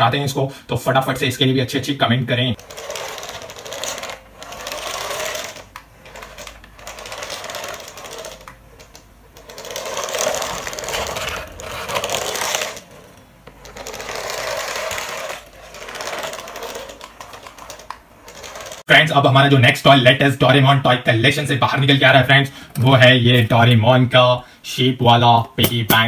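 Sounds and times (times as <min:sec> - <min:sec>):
toy electric motor whirring: 0:02.5 - 0:18.9.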